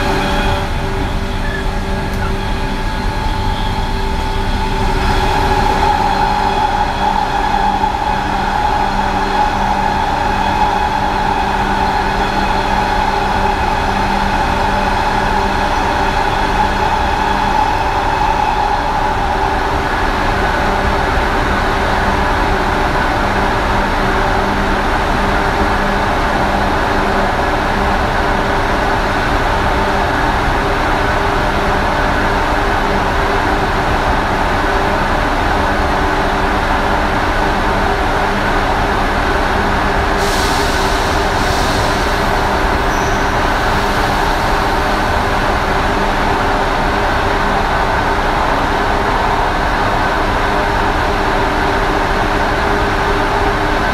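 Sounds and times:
traction motor whine: 0.0s - 22.8s
wheels rumbling on rail: 0.0s - 53.9s.

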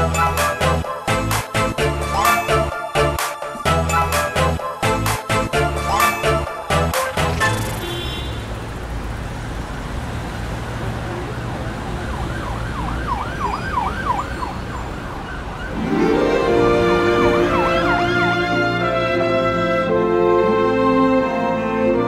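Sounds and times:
music: 0.0s - 7.8s, 15.7s - 22.0s
street traffic: 0.0s - 22.0s
emergency siren wailing: 11.2s - 22.0s.

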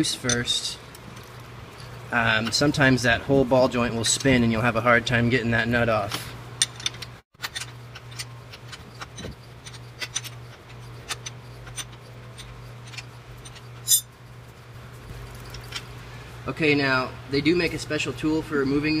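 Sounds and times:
steady low hum: 0.0s - 19.0s
wrench clicking: 6.6s - 14.1s.

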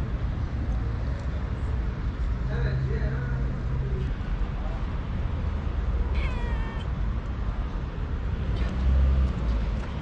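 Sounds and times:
kitten meowing: 6.1s - 7.0s.

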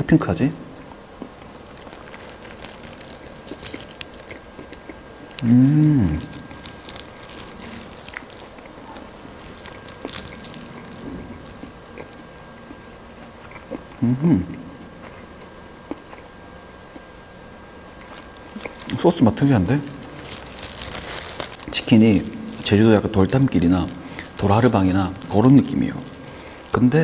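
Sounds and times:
chewing fried chicken: 1.2s - 14.1s, 17.9s - 26.9s
person humming: 5.4s - 6.4s, 14.0s - 14.7s.

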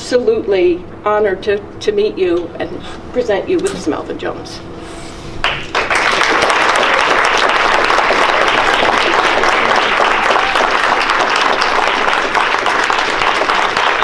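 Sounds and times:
audience applause: 5.4s - 14.0s.

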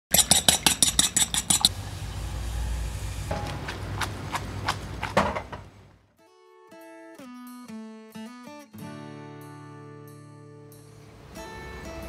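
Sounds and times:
fork beating egg on plate: 0.1s - 1.7s.

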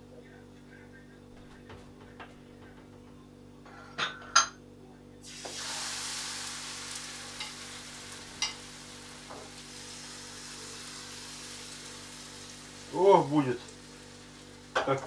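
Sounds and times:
pancakes sizzling in a pan: 5.2s - 15.0s.

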